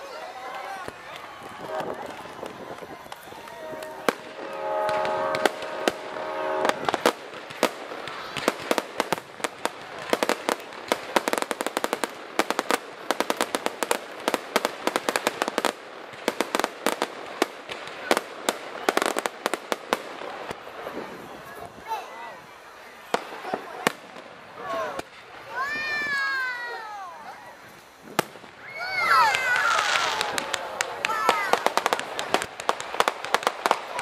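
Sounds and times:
fireworks crackles and pops: 0.0s - 34.0s
firework shells bursting: 1.6s - 19.9s.

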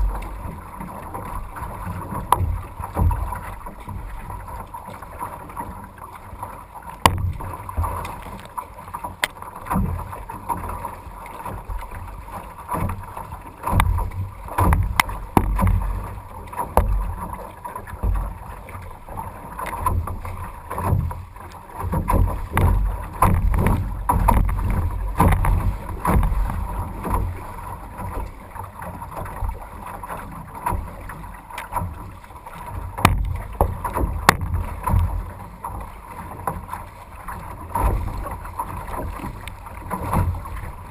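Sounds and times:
water sloshing against hull: 0.0s - 40.9s
wind rumbling on microphone: 0.0s - 40.9s
sharp knocks: 33.0s - 33.3s.

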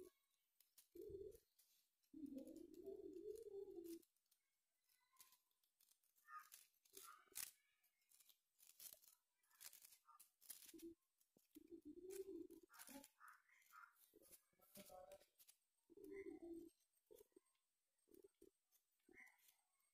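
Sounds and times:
paper crinkling and rustling: 0.0s - 16.3s.

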